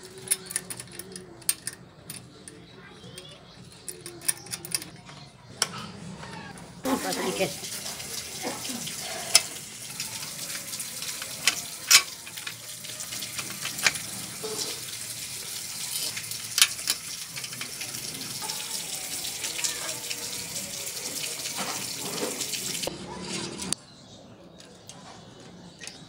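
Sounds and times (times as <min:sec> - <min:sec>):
metal clicks and taps: 0:00.0 - 0:05.8.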